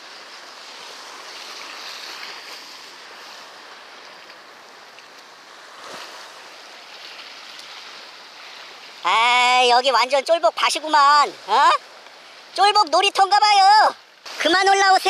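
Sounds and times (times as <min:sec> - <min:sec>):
waves washing on rocky shore: 0:00.0 - 0:15.0.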